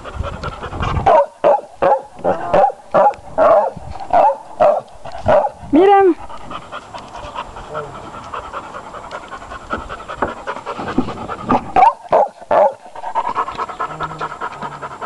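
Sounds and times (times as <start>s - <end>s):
dog panting: 0.0s - 2.1s, 4.6s - 15.0s.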